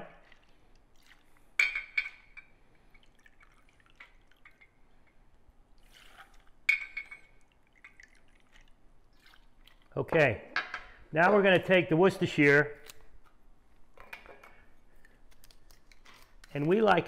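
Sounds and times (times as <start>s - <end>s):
liquid trickling: 0.0s - 10.0s
glass clinking on glass: 6.7s - 7.4s.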